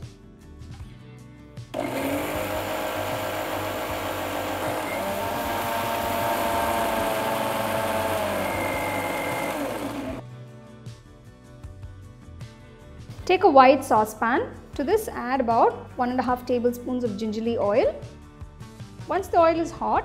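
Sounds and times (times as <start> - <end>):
mixer grinder motor whining: 1.8 - 10.2.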